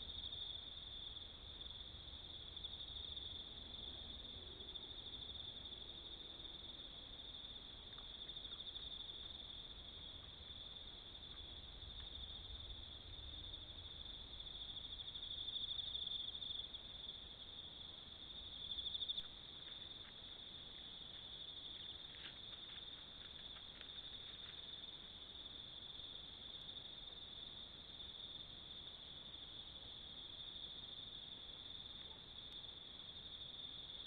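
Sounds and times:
night insects trilling: 0.0 - 34.0
faint light ticks and rustles: 7.8 - 10.5, 11.2 - 12.2, 19.0 - 25.3.

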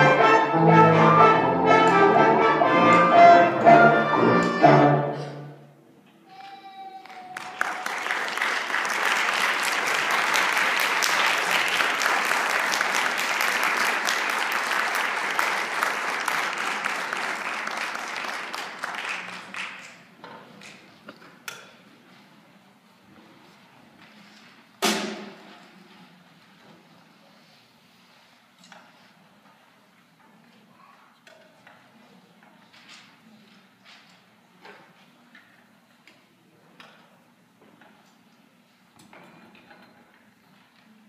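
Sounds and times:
audience applause: 7.0 - 20.1.

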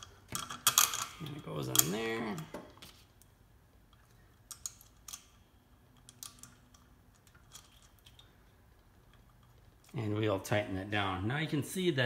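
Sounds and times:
small metal parts clicking: 0.0 - 2.5, 3.9 - 10.0.

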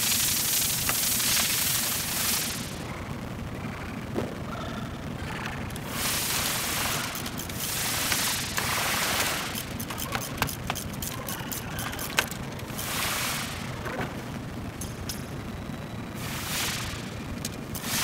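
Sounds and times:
sharp metallic clicks: 6.4 - 12.6.

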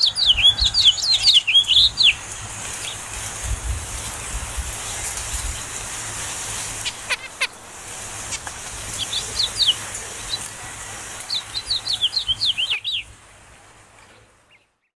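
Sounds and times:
finch chirping: 0.0 - 2.2, 8.9 - 10.5, 11.2 - 13.1
steady high hiss: 0.0 - 14.5.

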